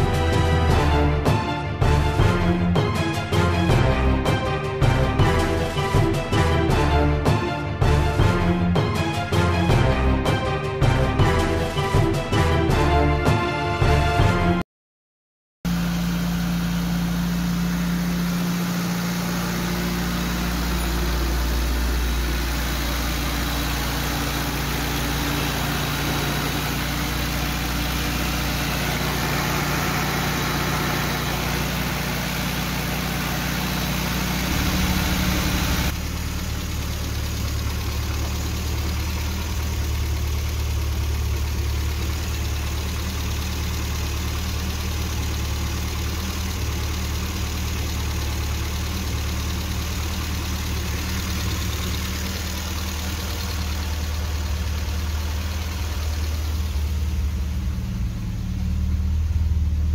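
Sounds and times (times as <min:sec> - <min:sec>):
car engine idling: 0:15.7 - 0:59.9.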